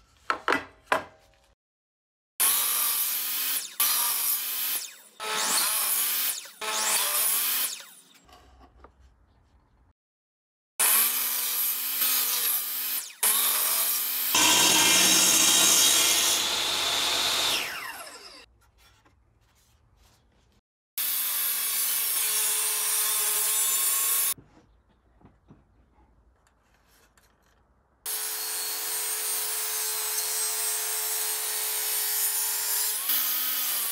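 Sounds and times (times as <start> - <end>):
table saw cutting wood: 2.4 - 8.3, 10.8 - 18.5, 21.0 - 24.4, 28.1 - 33.9
saw blade whine slowing: 14.4 - 18.5.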